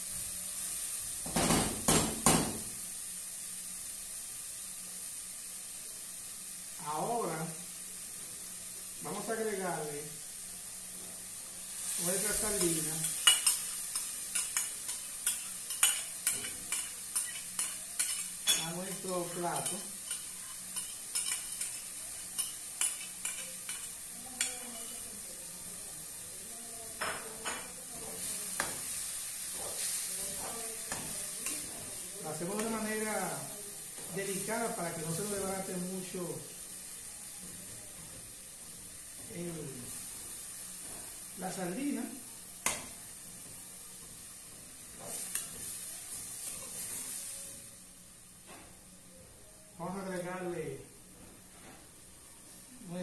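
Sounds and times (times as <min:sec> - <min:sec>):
seasonings sizzling in pot: 0:00.0 - 0:53.0.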